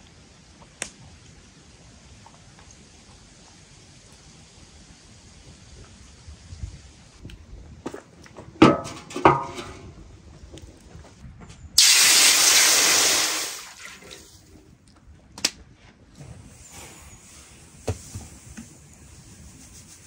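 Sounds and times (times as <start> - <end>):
water hissing in hot pan: 11.8 - 14.2.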